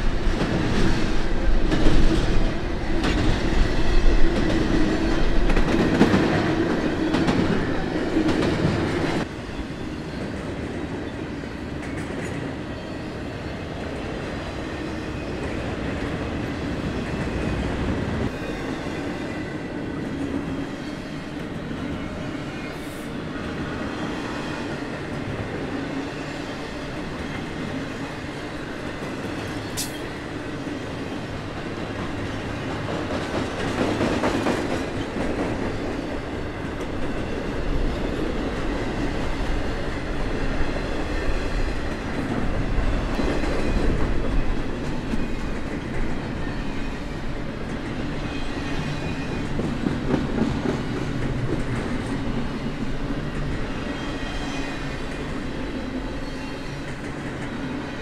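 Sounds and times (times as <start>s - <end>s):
freight train rumbling and rattling: 0.0s - 58.0s.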